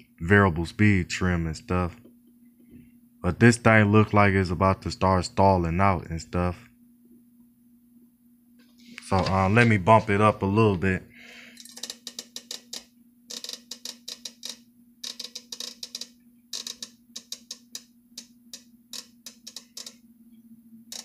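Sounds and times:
fan motor humming: 8.6s - 21.0s
fan speed control clicking: 11.6s - 20.1s.

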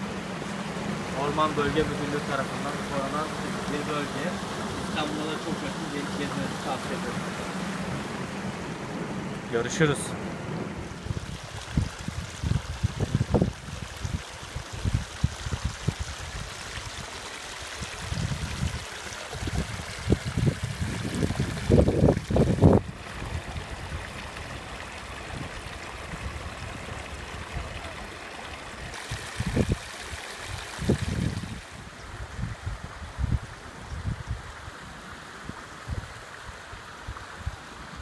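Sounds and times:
stream trickling over rocks: 0.0s - 10.0s, 10.8s - 38.0s
wind buffeting microphone: 0.0s - 17.1s, 17.8s - 27.7s, 29.0s - 29.9s, 30.5s - 34.7s.

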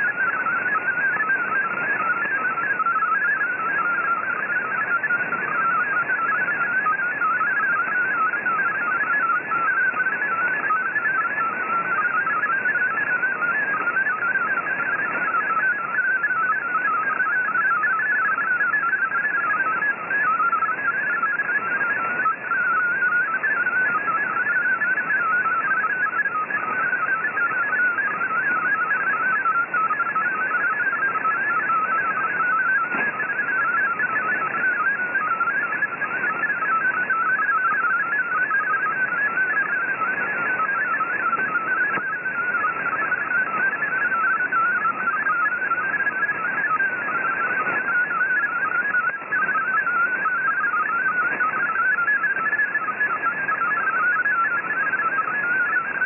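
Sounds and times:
radio band hiss: 0.0s - 56.0s
warbling digital data tones: 0.0s - 56.0s.

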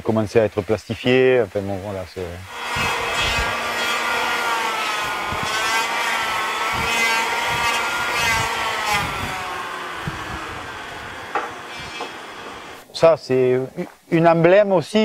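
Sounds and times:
power tool whining on wood: 2.5s - 12.8s.

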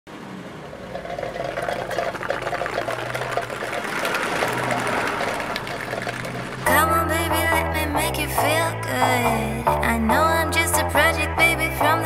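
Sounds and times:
rapid mechanical clatter: 0.4s - 7.7s.

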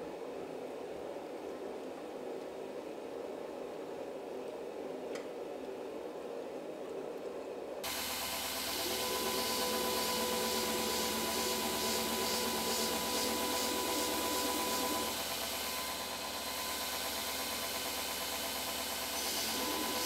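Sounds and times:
belt grinder grinding hiss: 7.8s - 20.0s.

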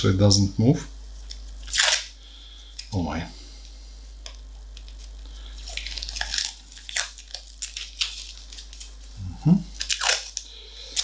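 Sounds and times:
masking tape tearing: 1.3s - 2.2s, 4.8s - 9.1s, 9.7s - 11.0s.

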